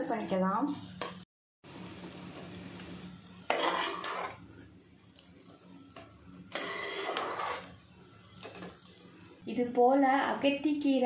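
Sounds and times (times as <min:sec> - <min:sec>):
metal ladle scraping a pot: 0:03.5 - 0:04.6, 0:06.5 - 0:07.8.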